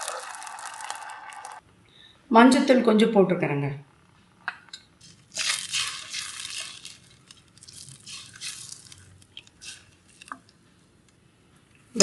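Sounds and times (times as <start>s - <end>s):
liquid swishing in a pot: 5.0s - 10.6s.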